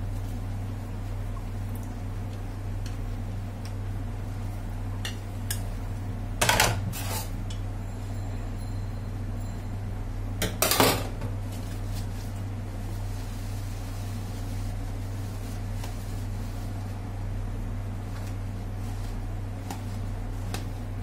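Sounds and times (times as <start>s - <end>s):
steady low hum: 0.0s - 21.0s
dishes clattering in a steel sink: 6.4s - 7.6s, 10.4s - 11.3s.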